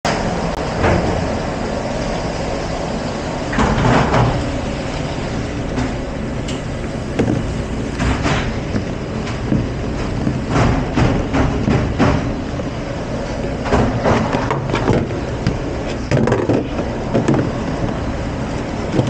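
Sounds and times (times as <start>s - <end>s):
loud rushing equipment noise: 0.0s - 19.0s
dishes and racks clattering: 3.5s - 8.6s.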